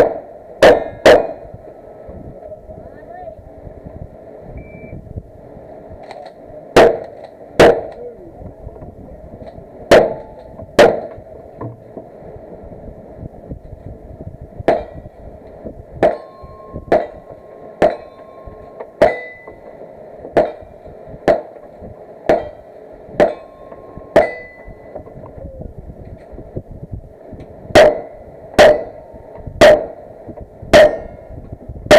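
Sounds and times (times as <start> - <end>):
gunshots: 6.8 - 8.0, 9.9 - 11.2
steel targets ringing: 16.0 - 19.8, 20.4 - 21.5, 22.3 - 25.0, 27.8 - 30.0, 30.7 - 31.4.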